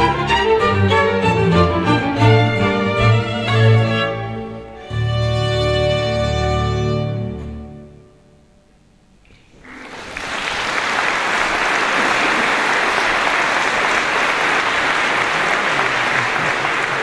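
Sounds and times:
audience applauding: 9.5s - 17.0s.

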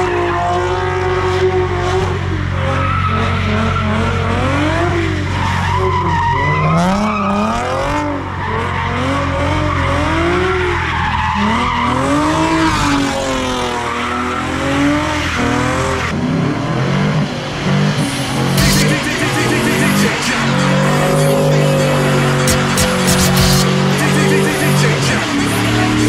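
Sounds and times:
revving engine drone: 0.0s - 5.8s, 11.4s - 26.0s
car tires screeching: 0.0s - 26.0s.

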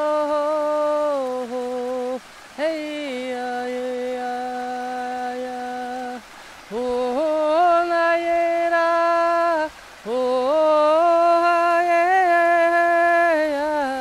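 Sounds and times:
person singing sustained notes: 0.0s - 14.0s
singer breathing: 6.2s - 6.7s.

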